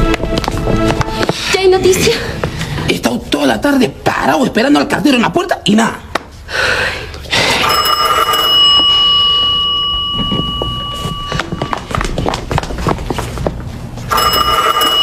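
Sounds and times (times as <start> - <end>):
footsteps on hard floor: 0.0 - 1.5, 10.0 - 14.1
telephone ringing: 7.6 - 11.9, 14.1 - 15.0.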